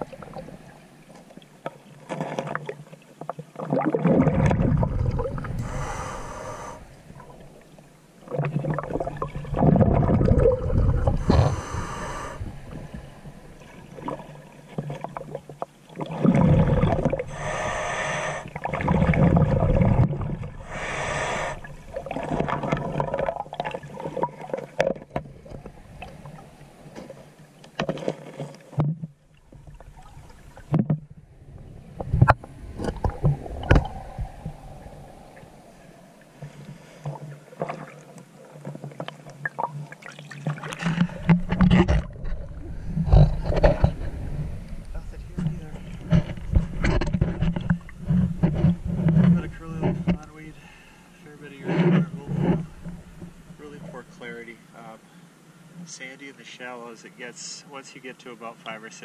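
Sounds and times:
water sloshing: 0:00.0 - 0:50.6
breathing through a snorkel: 0:05.5 - 0:07.2, 0:11.0 - 0:13.7, 0:16.6 - 0:18.7, 0:20.6 - 0:21.8, 0:32.7 - 0:37.3, 0:50.5 - 0:51.1.

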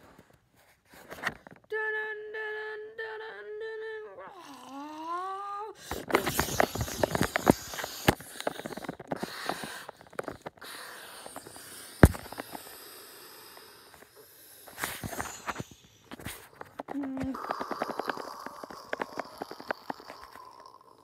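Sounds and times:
camera handling rustling and clicking: 0:05.9 - 0:10.7.

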